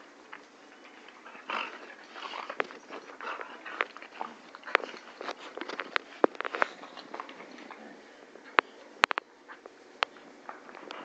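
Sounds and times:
puppies scuffling: 0:00.3 - 0:11.0
puppies vocalizing: 0:00.6 - 0:08.2.

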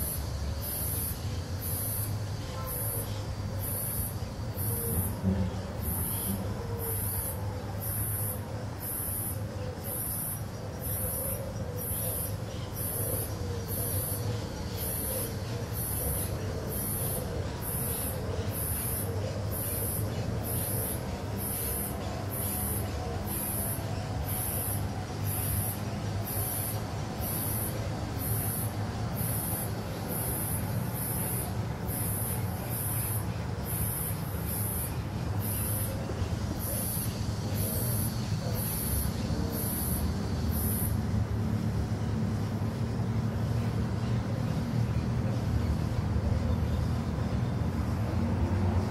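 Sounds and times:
distant street traffic rumble: 0:00.0 - 0:48.9.

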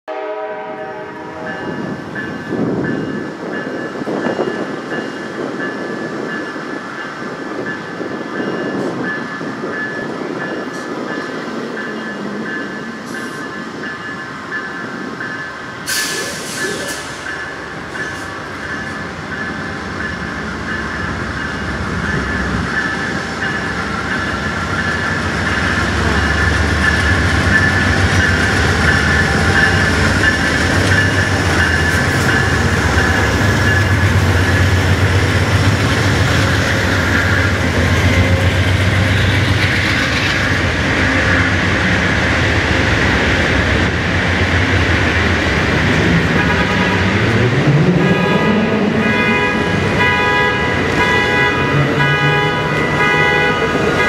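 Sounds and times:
diesel locomotive rumble: 0:09.6 - 0:54.0
train running gear squeal: 0:15.2 - 0:19.0, 0:22.0 - 0:41.7.

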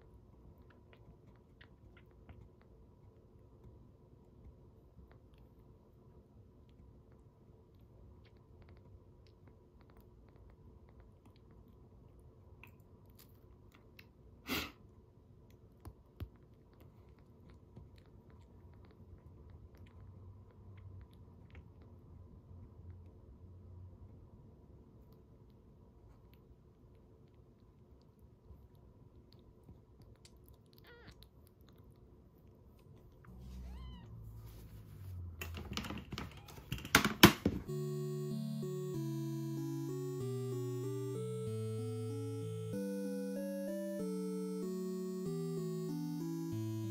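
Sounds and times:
cheerful music: 0:37.6 - 0:46.9.

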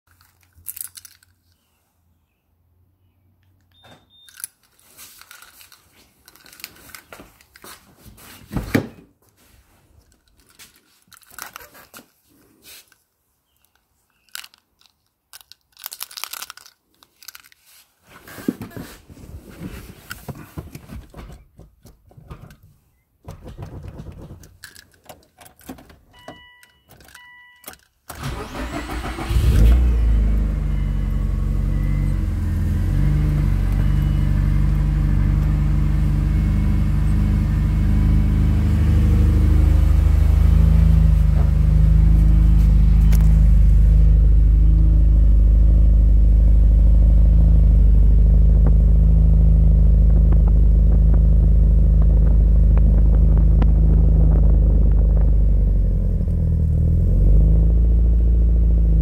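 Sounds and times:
short electronic beeps: 0:03.7 - 0:04.4
engine starter cranking: 0:28.1 - 0:30.7
car engine idling: 0:28.2 - 0:59.0.

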